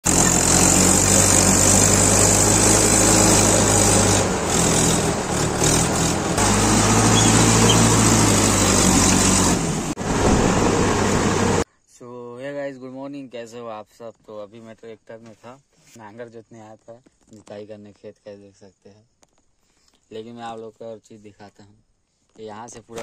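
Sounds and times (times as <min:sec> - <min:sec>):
diesel tractor engine running: 0:00.0 - 0:11.6.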